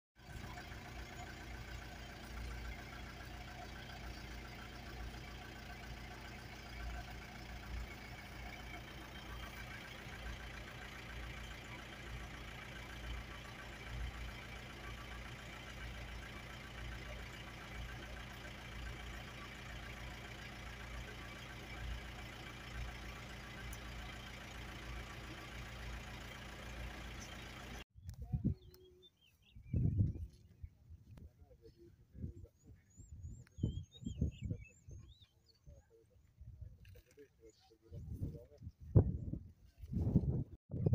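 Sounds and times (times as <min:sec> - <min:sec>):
engine idling: 0:00.2 - 0:27.8.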